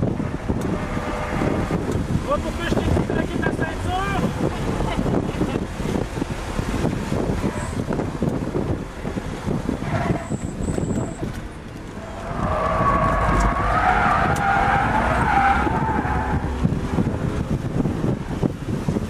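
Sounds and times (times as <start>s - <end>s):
car engine running under load: 0.0s - 19.0s
tyres squealing: 11.9s - 16.5s.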